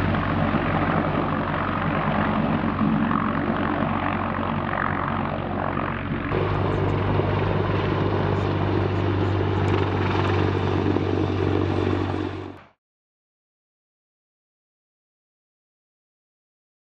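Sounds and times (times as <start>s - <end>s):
low hum: 0.0s - 12.6s
helicopter rotors and engines: 0.0s - 12.8s.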